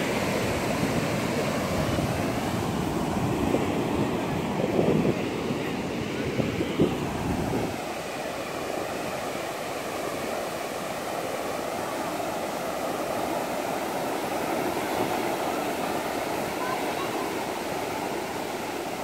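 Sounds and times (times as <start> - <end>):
wind buffeting microphone: 0.0 - 9.1
ocean waves breaking: 0.0 - 19.0.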